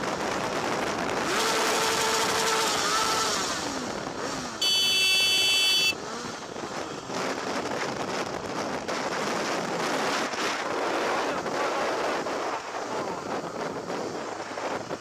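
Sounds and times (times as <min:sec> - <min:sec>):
motorcycle riding at speed: 0:00.0 - 0:15.0
loud horn blast: 0:04.6 - 0:06.0.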